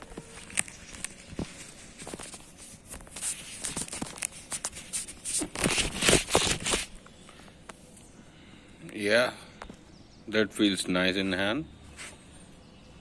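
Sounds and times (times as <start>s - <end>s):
glove rustling and rasping: 0.0s - 7.0s.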